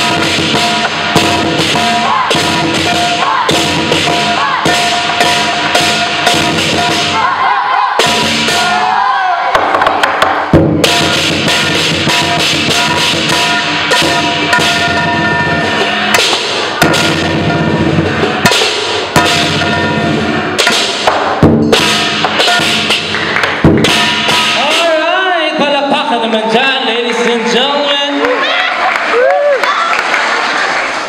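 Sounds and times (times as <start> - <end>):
cymbals clashing: 0.0 - 9.3, 10.5 - 25.6
big drum beaten rapidly: 0.0 - 26.6.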